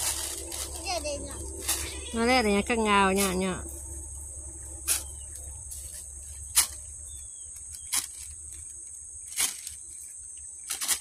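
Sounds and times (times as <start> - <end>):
high-pitched insect drone: 0.0 - 10.2.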